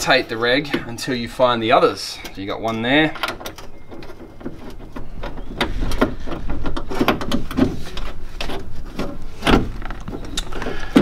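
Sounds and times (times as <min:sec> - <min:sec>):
metal clanking and scraping in car door: 0:02.7 - 0:11.0.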